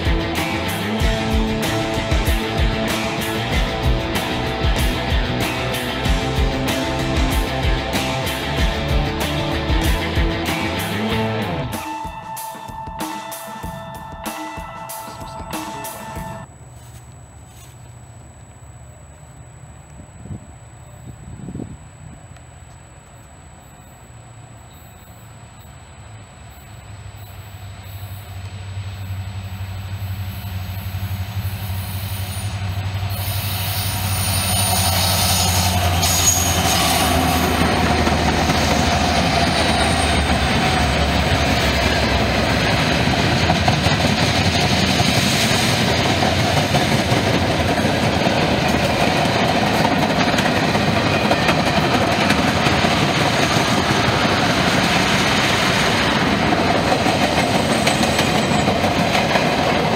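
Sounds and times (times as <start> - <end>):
diesel locomotive engine hum: 0.0 - 12.3, 14.1 - 59.9
train wheels clattering on rails: 30.5 - 59.9.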